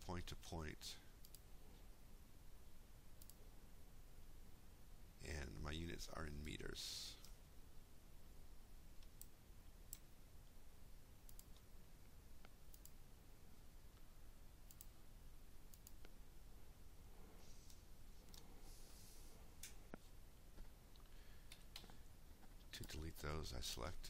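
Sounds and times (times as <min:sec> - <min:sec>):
low room hum: 0:00.0 - 0:24.0
faint computer mouse clicks: 0:03.2 - 0:03.4, 0:12.4 - 0:13.0, 0:14.7 - 0:14.9, 0:15.7 - 0:16.2.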